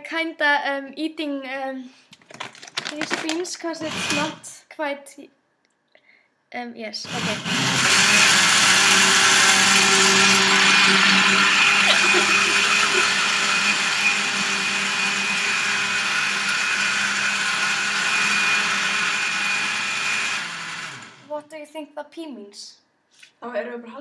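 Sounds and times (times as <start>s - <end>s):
blender running: 3.0s - 4.5s, 7.0s - 21.3s.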